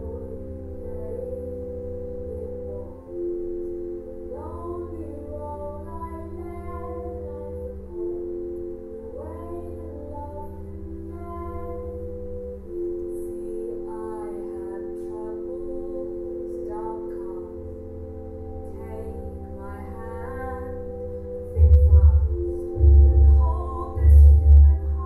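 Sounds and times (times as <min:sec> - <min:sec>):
woman singing: 0:00.0 - 0:03.4, 0:04.2 - 0:12.2, 0:13.0 - 0:17.8, 0:18.4 - 0:25.0
sustained held chord: 0:00.0 - 0:25.0
loud low pulsing beat: 0:21.6 - 0:25.0.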